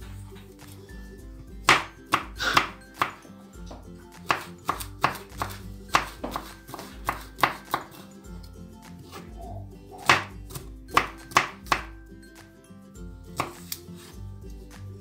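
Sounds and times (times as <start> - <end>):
background music: 0.0 - 15.0
knife chopping on wooden board: 1.6 - 8.0, 10.0 - 12.0, 13.4 - 13.8.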